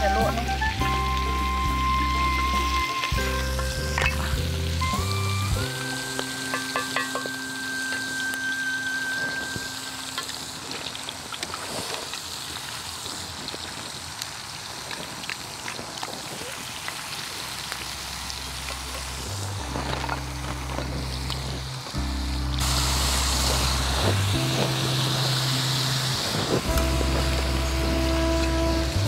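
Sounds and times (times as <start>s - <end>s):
snails sizzling in pan: 0.0s - 29.0s
metal spoon clinking: 6.5s - 7.4s.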